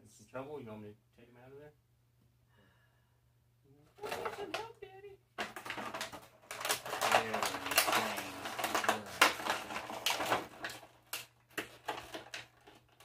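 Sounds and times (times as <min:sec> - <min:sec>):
plastic packaging crackling: 0:04.0 - 0:04.8, 0:05.4 - 0:13.0.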